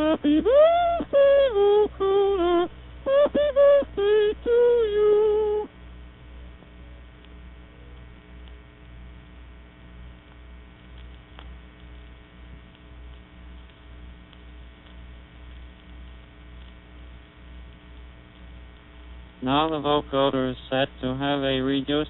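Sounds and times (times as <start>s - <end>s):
electrical mains hum: 0.0s - 22.0s
vocoder song note: 3.6s - 5.7s
faint click: 8.4s - 8.6s, 10.2s - 12.1s, 12.7s - 16.8s.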